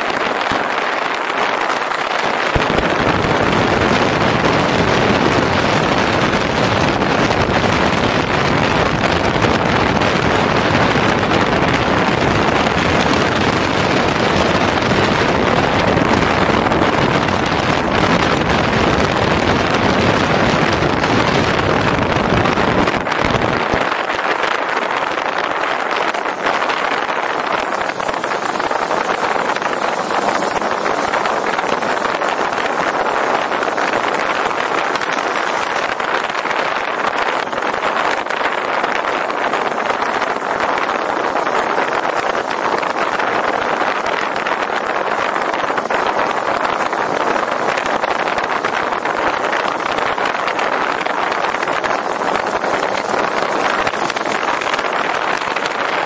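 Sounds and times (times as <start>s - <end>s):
motorcycle riding with wind roar: 0.0s - 56.0s.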